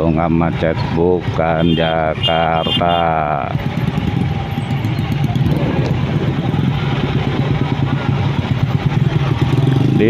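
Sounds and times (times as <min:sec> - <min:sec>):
traffic noise: 0:00.0 - 0:10.0
motorcycle engine at low revs: 0:03.4 - 0:10.0.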